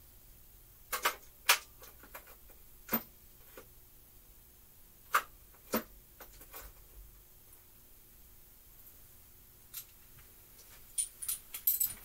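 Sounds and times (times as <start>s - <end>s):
metal hand tools clinking: 11.0s - 12.0s.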